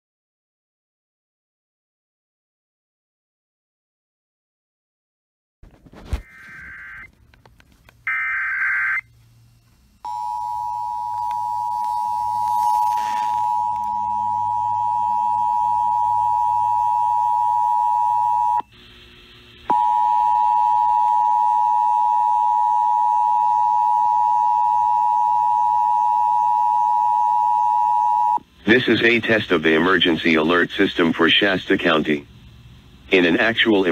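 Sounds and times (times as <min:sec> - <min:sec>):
radio noise: 0:05.9 - 0:07.2, 0:11.1 - 0:14.8, 0:28.6 - 0:32.4, 0:33.0 - 0:33.9
warbling digital data burst: 0:11.7 - 0:14.1.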